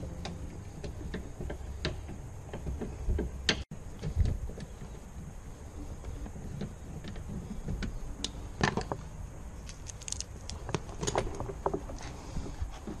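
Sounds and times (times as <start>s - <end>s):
plastic connectors clicking: 9.6s - 11.0s.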